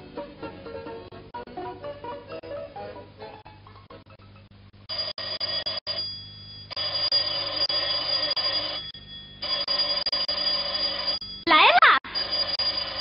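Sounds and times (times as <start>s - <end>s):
telephone bell ringing: 4.9s - 13.0s.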